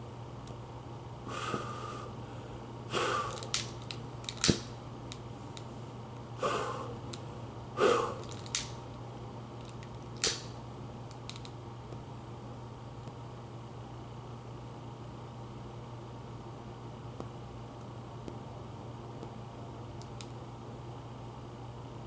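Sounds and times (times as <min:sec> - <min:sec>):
steady low hum: 0:00.0 - 0:22.0
breathy puffs: 0:01.3 - 0:03.5, 0:06.4 - 0:07.0, 0:07.8 - 0:08.4.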